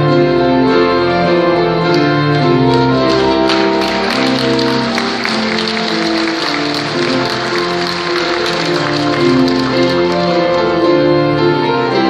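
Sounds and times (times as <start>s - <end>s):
piano and organ chords: 0.0s - 12.0s
congregation applauding: 1.9s - 11.2s.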